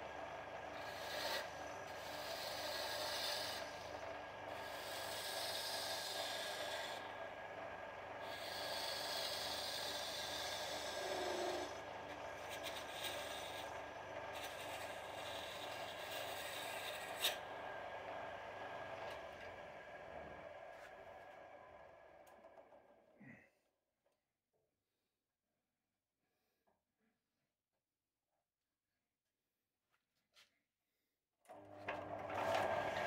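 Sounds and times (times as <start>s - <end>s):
wood lathe motor hum: 0.0s - 23.0s, 31.5s - 33.0s
turning tool scraping wood: 0.6s - 7.1s, 8.2s - 17.5s.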